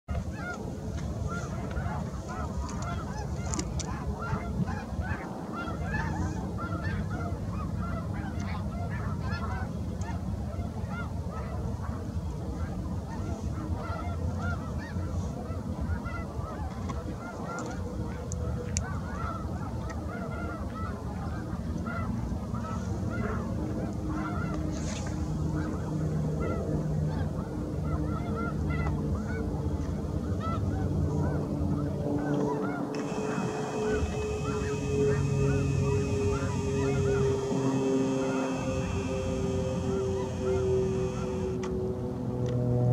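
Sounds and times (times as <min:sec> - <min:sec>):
flock of birds chattering: 0:32.4 - 0:41.6
low steady hum: 0:32.7 - 0:42.9.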